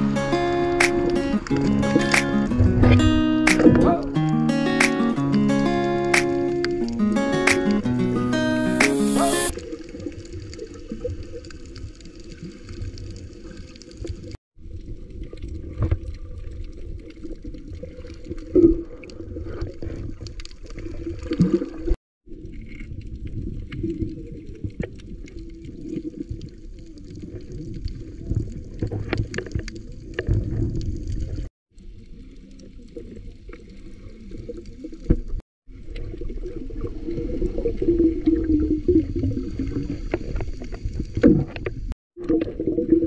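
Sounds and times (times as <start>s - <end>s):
small underwater clicks: 0.8s - 2.5s, 9.5s - 36.9s
underwater gurgling: 9.0s - 43.0s
underwater water rumble: 9.5s - 43.0s.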